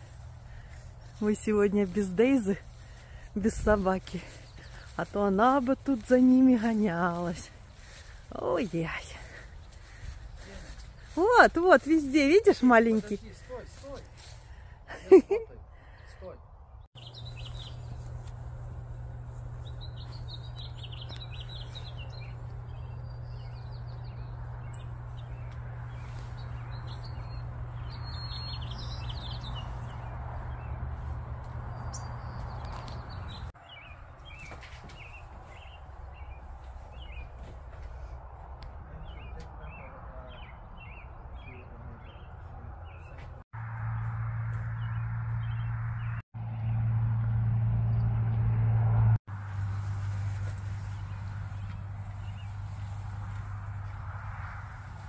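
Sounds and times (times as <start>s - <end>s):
birds chirping and singing: 0.0s - 14.6s, 15.9s - 43.4s, 44.6s - 46.8s, 49.7s - 55.0s
low background hum: 17.0s - 33.4s.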